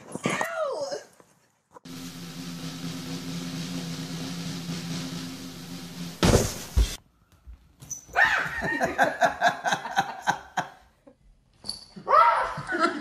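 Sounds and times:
loud rustling thump: 4.6 - 7.0.

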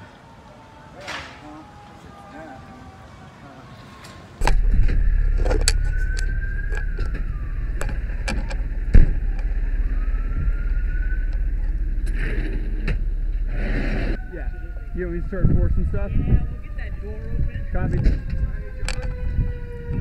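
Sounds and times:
siren wailing: 0.0 - 20.0
engine and road rumble: 3.2 - 20.0
heavy thump: 4.4 - 15.8.

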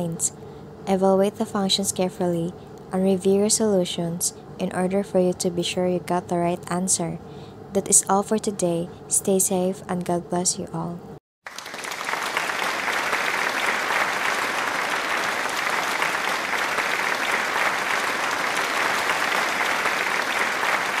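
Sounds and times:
many hands clapping: 11.5 - 21.0.

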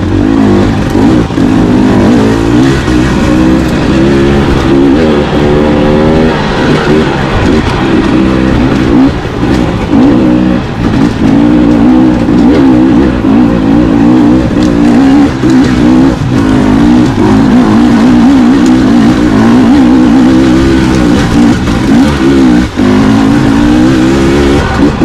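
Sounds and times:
dirt bike engine revving: 0.0 - 25.0.

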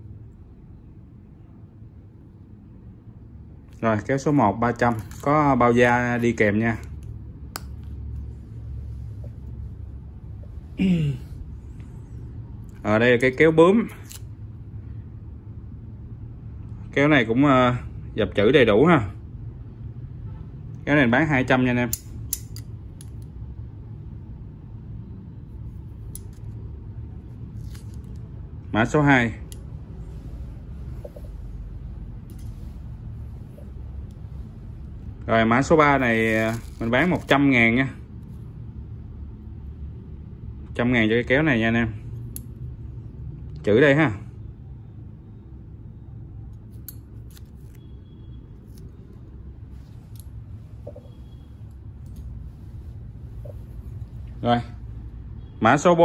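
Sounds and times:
low background hum: 0.0 - 56.0
metallic scissors clicks: 21.9 - 23.3, 26.0 - 26.5, 46.6 - 47.8.

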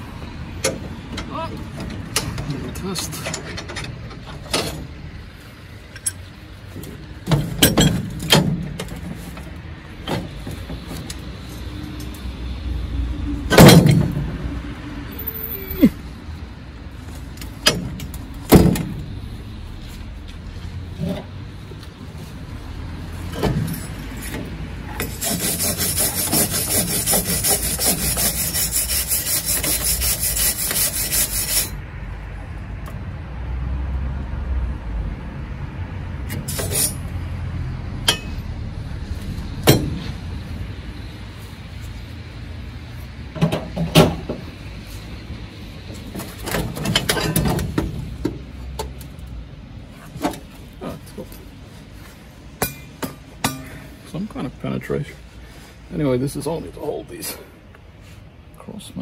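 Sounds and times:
sharp metal knocks: 7.2 - 8.9, 13.5 - 14.2, 38.0 - 38.5, 39.6 - 40.1, 52.6 - 53.8
wire brush scrubbing rusty steel: 23.8 - 31.8, 36.3 - 37.2.

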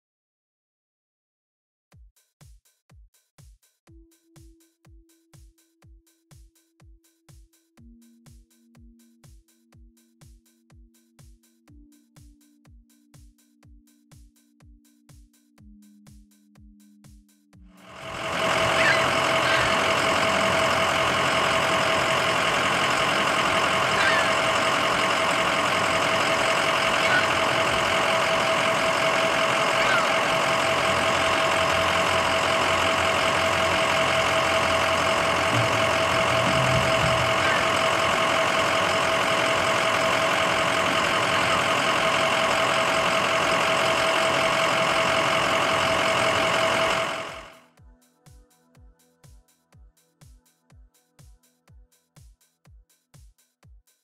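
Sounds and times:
ambulance engine idling: 17.8 - 47.6
constant whine: 17.8 - 47.6.

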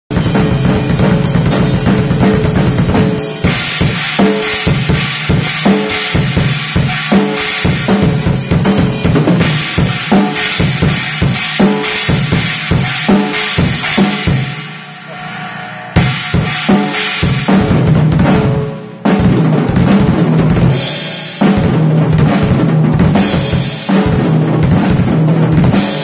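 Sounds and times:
crashing cymbals: 0.1 - 18.8.

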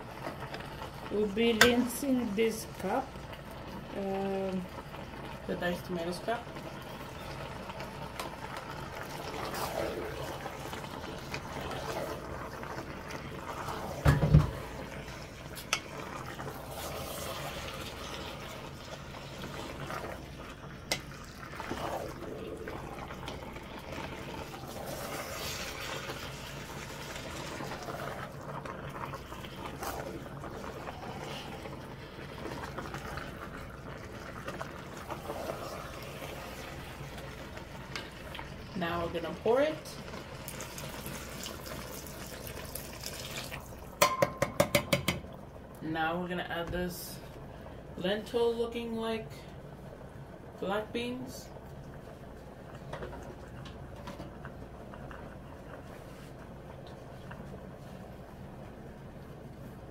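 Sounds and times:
water running into container: 6.3 - 44.1.

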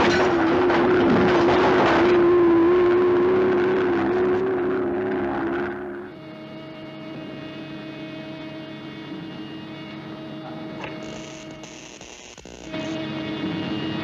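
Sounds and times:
glass breaking: 0.0 - 2.2
electrical hum of control panel: 0.0 - 14.0
robot mechanical whirring drone: 1.8 - 6.3, 10.6 - 14.0.

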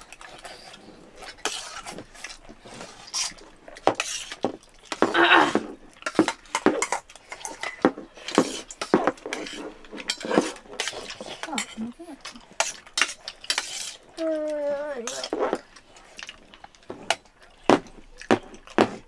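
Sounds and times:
loud metal scrape: 12.6 - 14.0.

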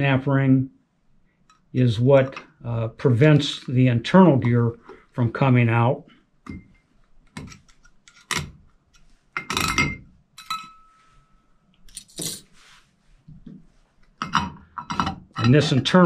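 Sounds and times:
metal parts clicking and clinking: 9.4 - 10.9, 11.9 - 12.4.

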